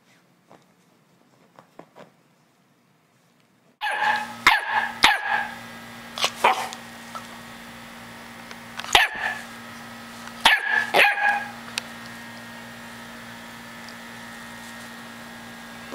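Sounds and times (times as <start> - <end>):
soft rustles: 0.0 - 3.7
puppy barking: 3.8 - 5.6, 6.2 - 6.8, 8.9 - 9.5, 10.4 - 11.6.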